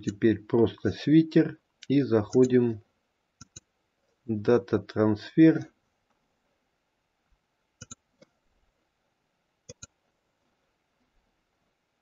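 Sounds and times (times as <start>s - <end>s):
computer mouse clicking: 3.4s - 3.7s, 7.8s - 8.3s, 9.7s - 10.0s.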